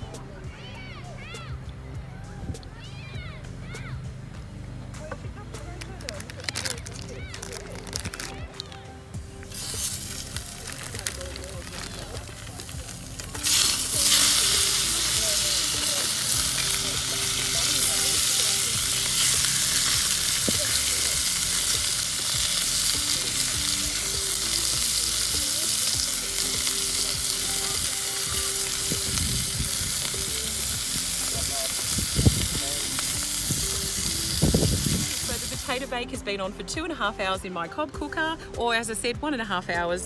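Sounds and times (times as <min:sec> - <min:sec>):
steak sizzling in frying pan: 0:09.4 - 0:35.9.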